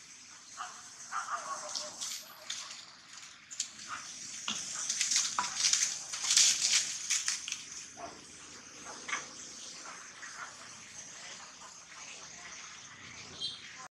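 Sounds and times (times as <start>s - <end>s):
dry leaves crunching: 1.5s - 8.0s.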